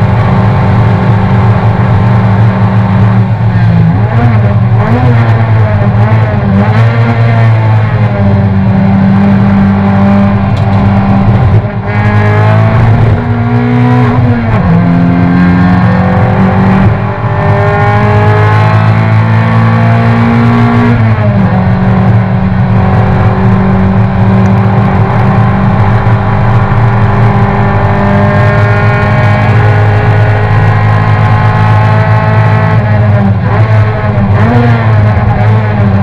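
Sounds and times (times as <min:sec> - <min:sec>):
race car engine revving: 0:00.0 - 0:36.0.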